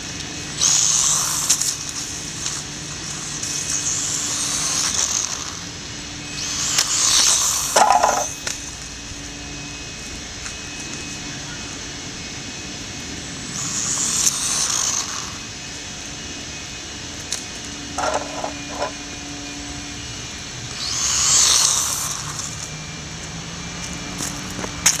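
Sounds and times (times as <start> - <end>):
toy truck motor whine: 0.0 - 25.0
short clatters: 18.0 - 19.0.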